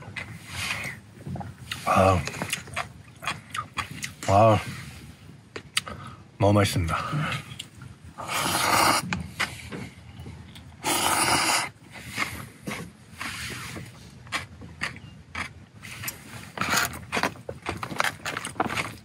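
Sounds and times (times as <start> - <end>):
slurping noodles: 8.2 - 9.5, 10.8 - 13.9.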